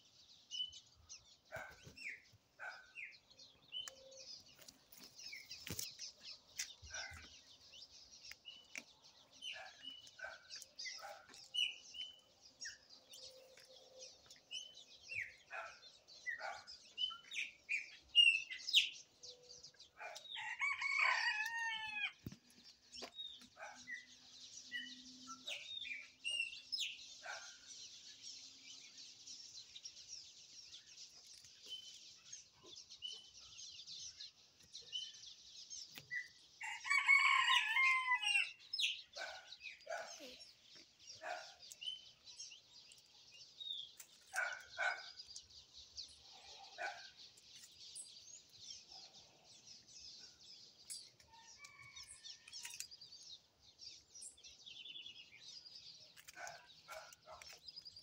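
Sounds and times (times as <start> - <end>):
small birds chirping: 0.0 - 58.0
rooster crowing: 20.4 - 22.2, 36.6 - 38.6.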